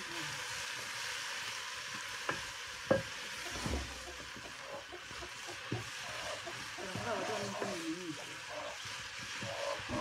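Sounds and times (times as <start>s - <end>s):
greens sizzling in a pot: 0.0s - 10.0s
wooden spoon knocking pot: 4.1s - 7.8s.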